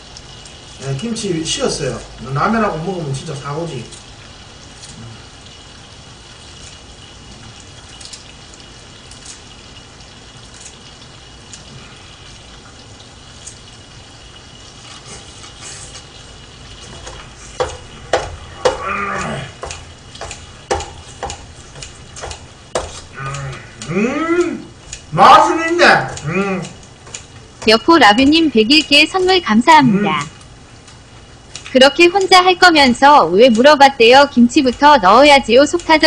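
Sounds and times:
food sizzling in a frying pan: 0.0s - 36.0s
metal utensils knocking on pan: 16.9s - 23.0s.

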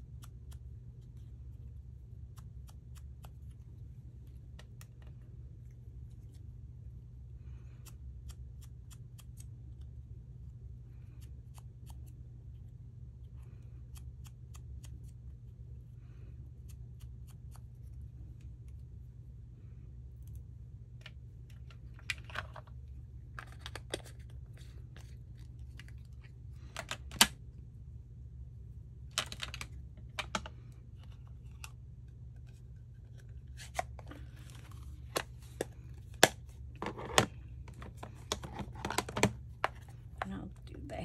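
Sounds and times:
steady low hum: 0.0s - 41.0s
paper rustling: 32.5s - 40.3s.

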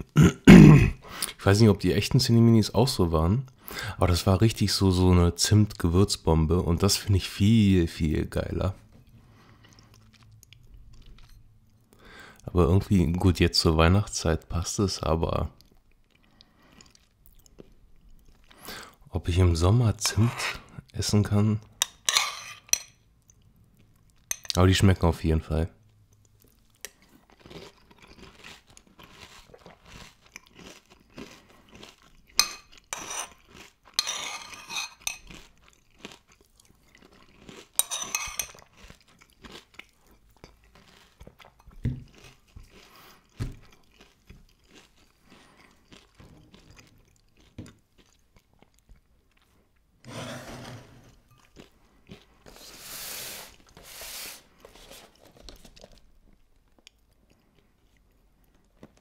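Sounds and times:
chewing crunchy cereal: 9.3s - 12.5s, 15.5s - 19.0s, 25.8s - 49.9s, 51.2s - 53.8s, 54.5s - 59.0s.

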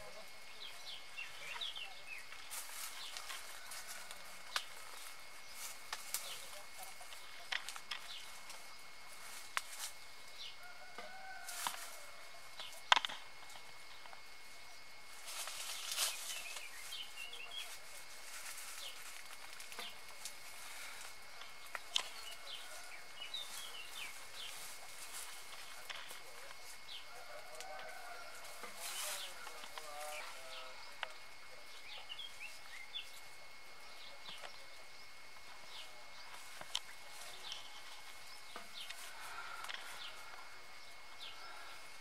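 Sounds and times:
birds chirping: 0.0s - 42.0s
dry leaves and twigs crackling: 0.0s - 42.0s
twig snapping: 9.5s - 9.9s.

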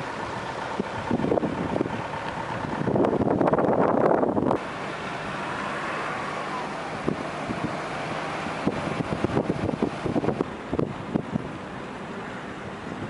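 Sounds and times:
wind buffeting microphone: 0.0s - 4.6s, 6.9s - 11.7s
car engine and road noise: 0.0s - 13.0s.

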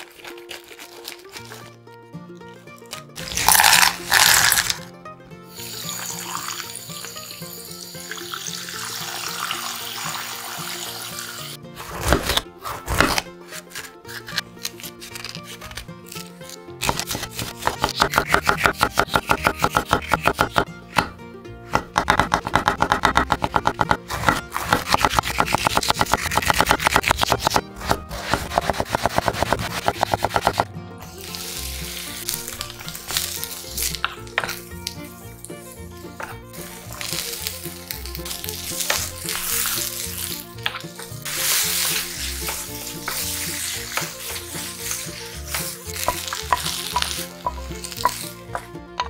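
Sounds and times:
light background music: 0.0s - 49.0s
vegetables sizzling in a frying pan: 5.6s - 11.5s
knife chopping on wooden board: 11.8s - 14.2s, 16.8s - 30.7s, 45.5s - 49.0s
knife tapping on cutting board: 17.8s - 25.2s
spatula stirring: 41.0s - 48.7s.

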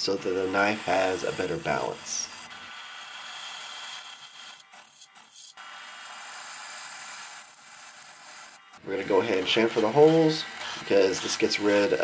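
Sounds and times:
drill bit cutting metal: 0.3s - 12.0s.

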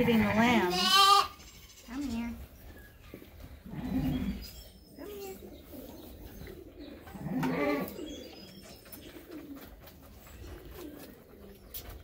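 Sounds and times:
sheep bleating: 0.0s - 2.0s.

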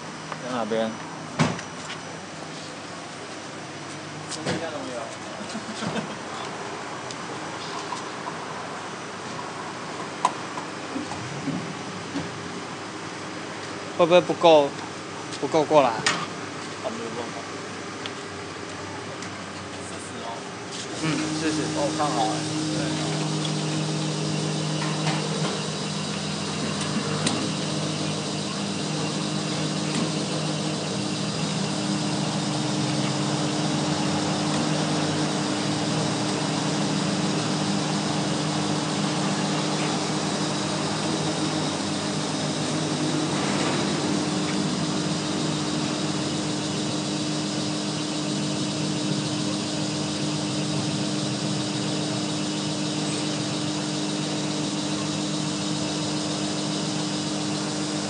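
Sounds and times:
fuel pump humming: 19.8s - 58.0s.

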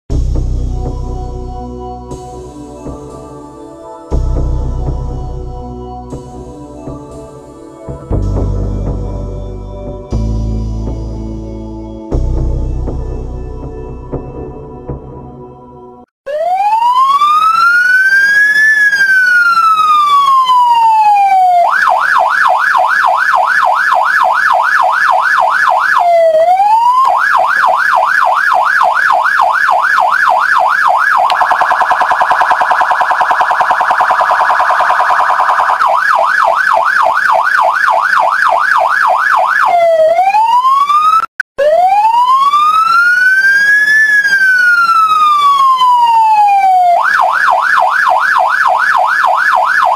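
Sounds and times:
electronic police siren: 16.3s - 49.9s.

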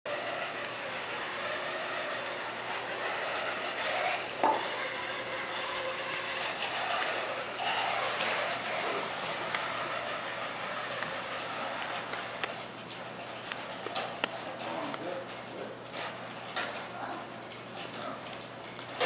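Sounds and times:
robot motors whirring: 0.1s - 12.6s.

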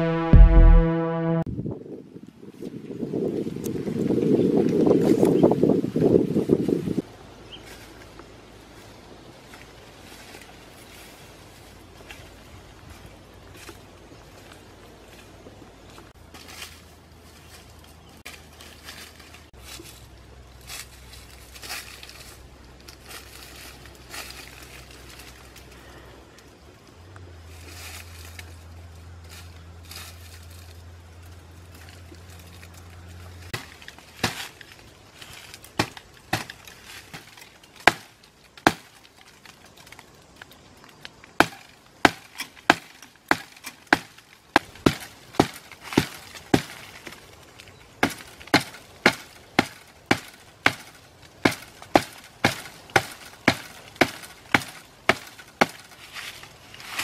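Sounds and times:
low steady hum: 0.0s - 1.6s
blade chopping bamboo: 33.5s - 34.8s, 35.6s - 39.2s, 41.3s - 47.3s, 48.0s - 57.0s.

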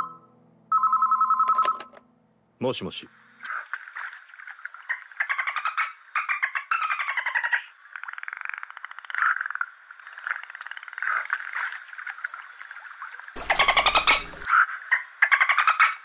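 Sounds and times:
dolphin squeaks: 13.4s - 14.5s.

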